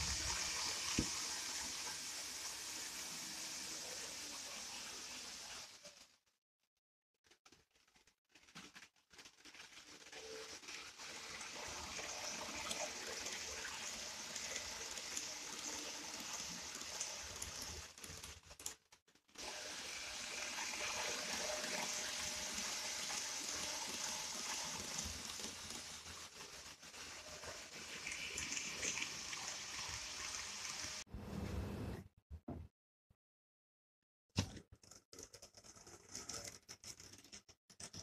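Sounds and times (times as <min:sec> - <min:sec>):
model train running on track: 0:10.3 - 0:18.3.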